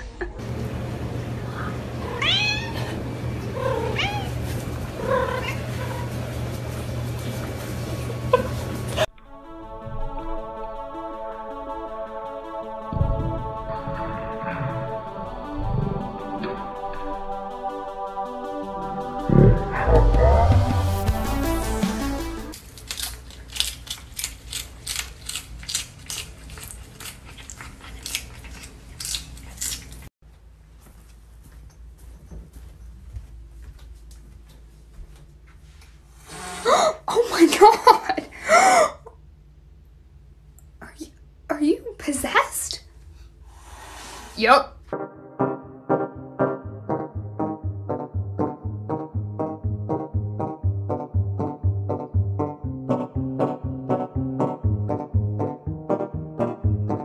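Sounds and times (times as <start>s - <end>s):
steady low hum: 0.0s - 37.3s
cat meowing: 2.0s - 3.0s, 3.6s - 4.4s
cat crunching lettuce: 22.6s - 30.1s.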